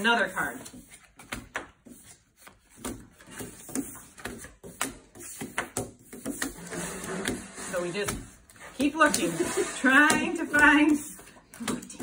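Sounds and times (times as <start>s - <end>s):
playing cards slapping on wood: 0.8s - 6.6s.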